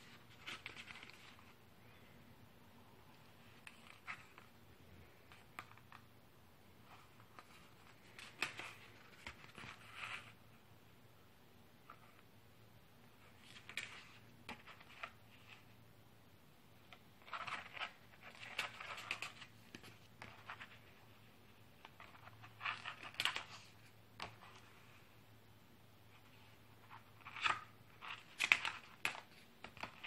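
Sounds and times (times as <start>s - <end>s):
paper pages being turned: 0.0s - 1.6s.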